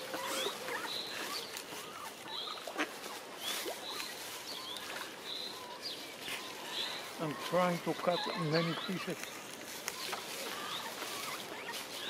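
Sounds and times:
ducklings peeping: 0.0 - 12.0.

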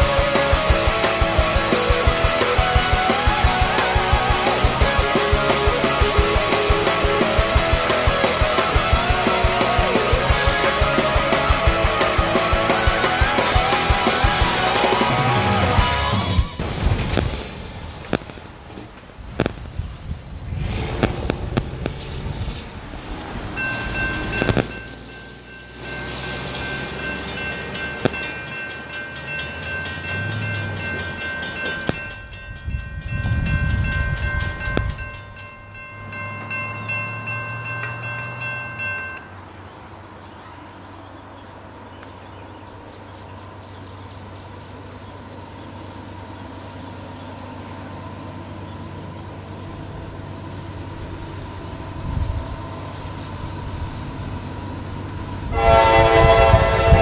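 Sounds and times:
passing road traffic: 0.0 - 57.0
locomotive air horn: 55.4 - 57.0.

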